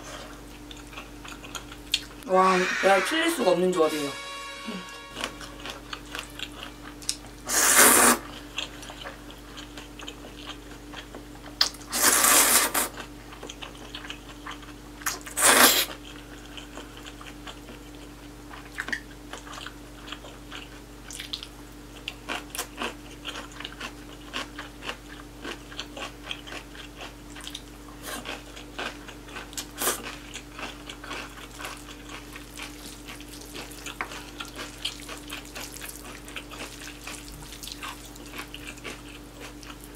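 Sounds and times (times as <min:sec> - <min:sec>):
chewing with crunches and smacks: 0:00.0 - 0:02.2, 0:05.9 - 0:39.9
loud noodle slurps: 0:07.5 - 0:08.3, 0:11.9 - 0:12.9, 0:15.3 - 0:16.0.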